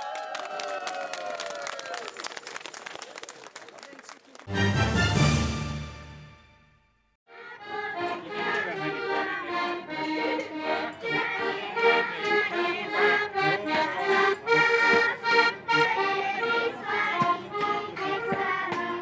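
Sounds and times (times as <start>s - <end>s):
accordions playing folk music: 4.5s - 6.7s, 7.3s - 19.0s.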